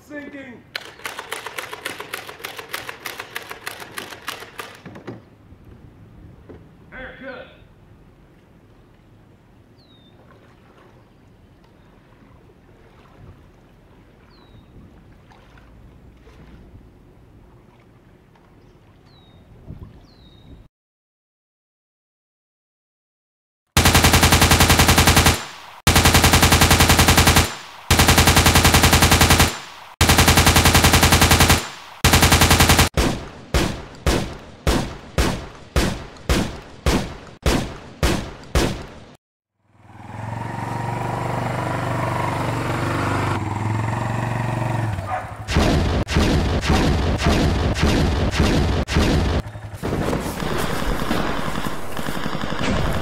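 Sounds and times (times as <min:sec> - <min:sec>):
machine-gun fire: 0:00.8 - 0:04.8, 0:23.8 - 0:39.2, 0:45.5 - 0:53.0
single gunshots: 0:23.8 - 0:39.2, 0:45.5 - 0:53.0.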